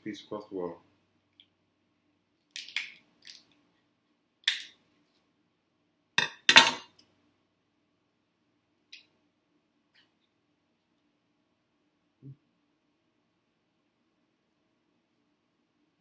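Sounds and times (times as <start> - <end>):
shell cracking: 2.4 - 3.5.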